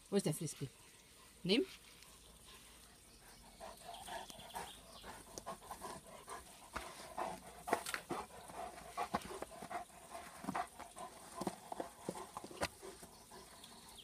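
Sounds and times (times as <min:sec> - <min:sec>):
dog panting: 0:02.0 - 0:14.0
dog pawing at dirt: 0:05.4 - 0:13.5.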